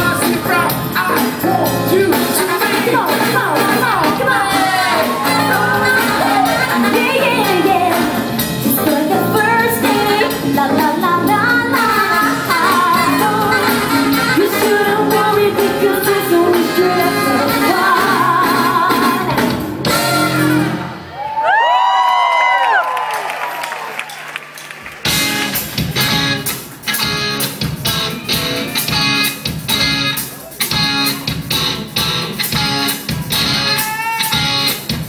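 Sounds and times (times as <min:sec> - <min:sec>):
lead vocal singing: 0:00.0 - 0:19.5
band playing pop music: 0:00.0 - 0:21.6, 0:25.0 - 0:35.0.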